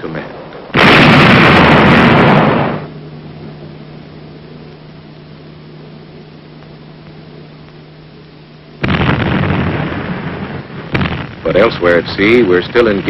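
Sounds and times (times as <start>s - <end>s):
low hum: 0.0s - 13.0s
steady hiss: 0.0s - 13.0s
heavy gun blast: 0.7s - 2.9s, 8.8s - 13.0s.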